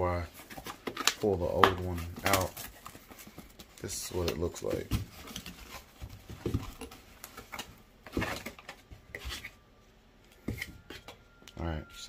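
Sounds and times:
scraping and rustling in box: 0.1 - 9.7.

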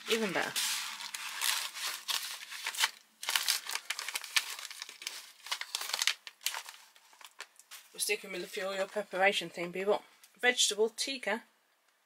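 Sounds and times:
foil pouches crinkling: 0.0 - 9.2.

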